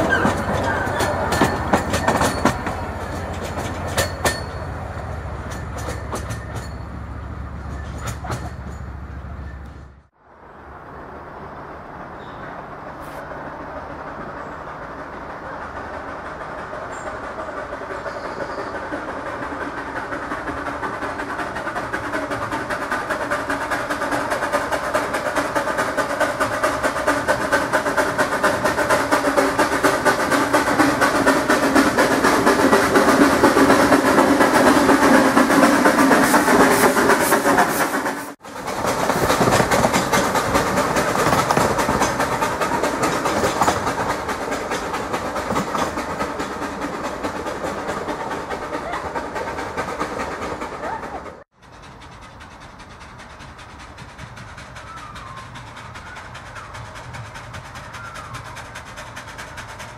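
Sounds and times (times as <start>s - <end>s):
steam locomotive chuffing: 0.0s - 59.9s
train wheels on rails: 0.0s - 59.9s.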